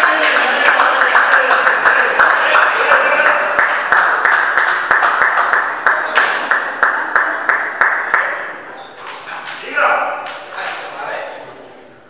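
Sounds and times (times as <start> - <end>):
spectators clapping in rhythm: 0.0 - 8.5.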